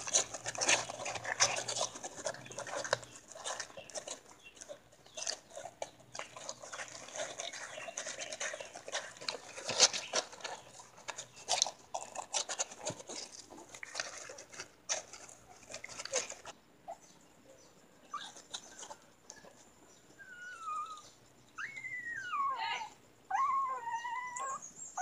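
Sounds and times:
puppies suckling wet smacking: 0.0 - 16.6.

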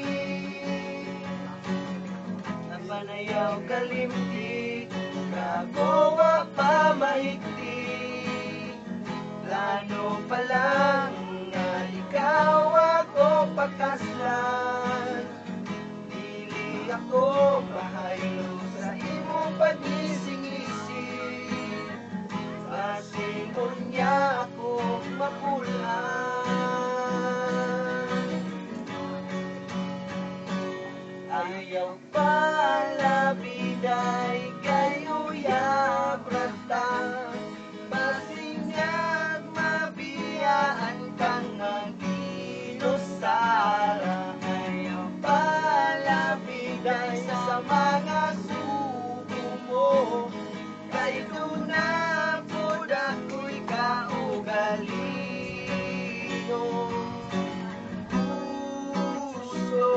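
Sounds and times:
man singing: 0.0 - 28.8, 31.2 - 59.9
acoustic guitar strumming: 0.0 - 59.9.

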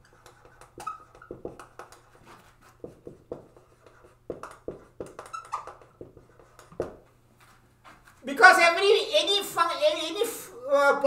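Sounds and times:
marker scratching on whiteboard: 0.0 - 7.0
marker tip squeak: 0.1 - 1.9, 4.5 - 6.1.

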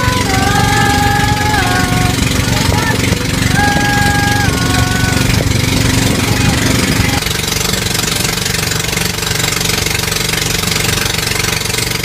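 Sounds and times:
boat engine running: 0.0 - 12.0
wind and water hiss: 0.0 - 12.0.

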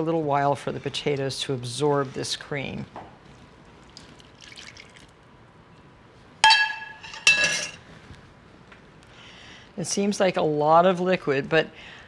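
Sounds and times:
metal ladle clinking on cookware: 6.4 - 7.8.

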